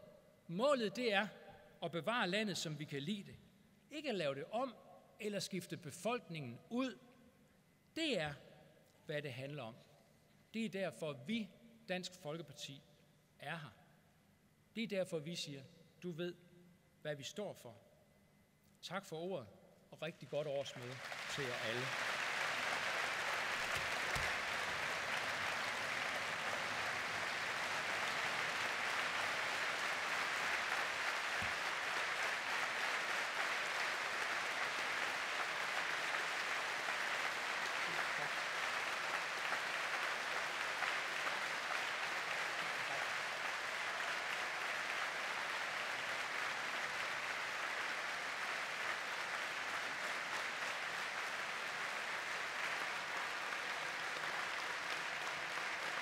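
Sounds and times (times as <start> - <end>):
audience applause: 20.7 - 56.0.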